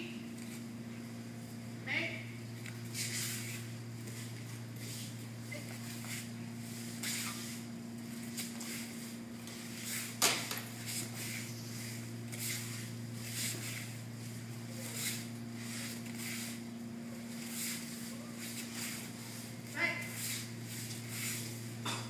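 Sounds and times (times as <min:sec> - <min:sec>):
steady low hum: 0:00.0 - 0:22.0
bare feet scuffing on mats: 0:02.9 - 0:21.7.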